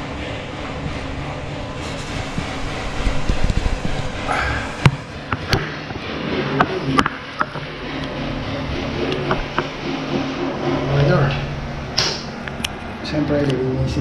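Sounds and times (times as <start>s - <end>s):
sharp clicks and knocks: 2.2s - 8.2s.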